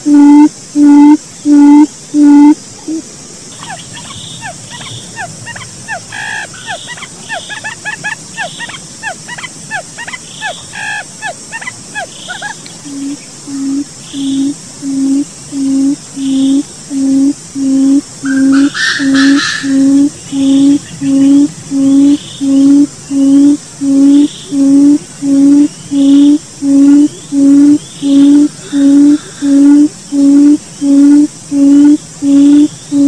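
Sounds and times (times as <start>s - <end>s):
quail low hoots: 0.0s - 33.0s
falling bird chirps: 3.6s - 14.4s, 18.3s - 21.5s.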